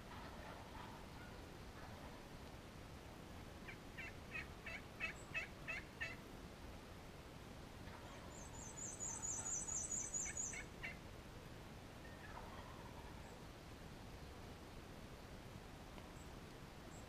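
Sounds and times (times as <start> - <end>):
turkey yelping: 4.0 - 6.2, 12.1 - 13.2.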